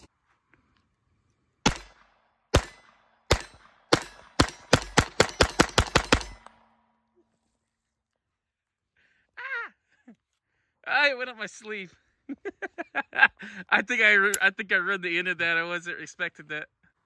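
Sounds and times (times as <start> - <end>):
pistol shots: 1.6 - 6.8.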